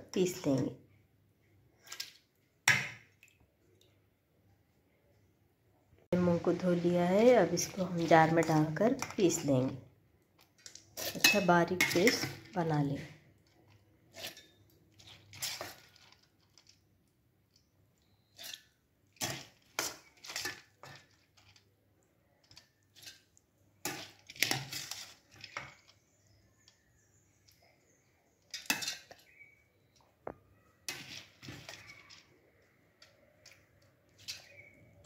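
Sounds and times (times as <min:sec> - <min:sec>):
metal spoon scraping metal bowl: 0:10.6 - 0:12.6, 0:14.1 - 0:16.2, 0:18.2 - 0:21.6, 0:22.9 - 0:25.8, 0:28.5 - 0:29.3, 0:30.8 - 0:32.3.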